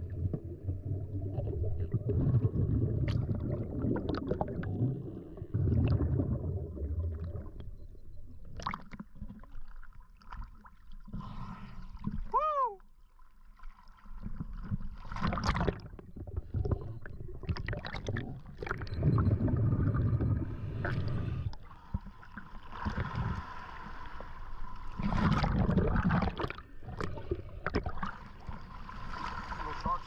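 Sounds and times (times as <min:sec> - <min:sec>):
underwater bubbling and rushing: 0:00.0 - 0:12.4, 0:13.3 - 0:30.0
water sloshing and splashing: 0:13.0 - 0:30.0.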